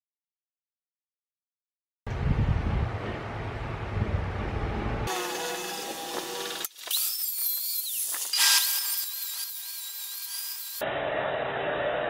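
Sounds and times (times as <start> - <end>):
power tool cutting steel rail: 5.1 - 12.0.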